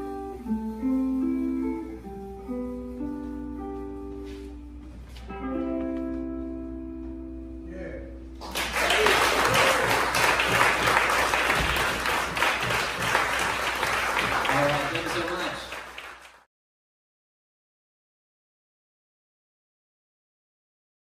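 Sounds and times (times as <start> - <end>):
jazz combo sustained chord: 0.0 - 8.4
audience applause and cheering: 8.4 - 16.5.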